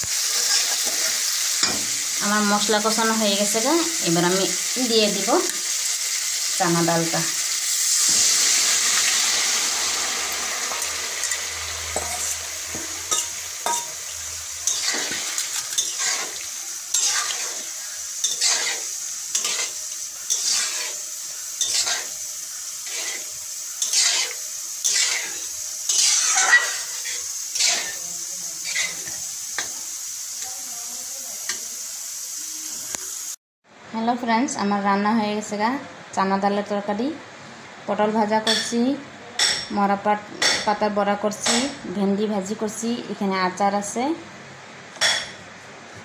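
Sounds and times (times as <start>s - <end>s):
lentils sizzling in hot wok: 0.0s - 33.4s
metal spoon scraping wok: 0.1s - 1.9s, 10.6s - 14.0s, 14.6s - 29.8s.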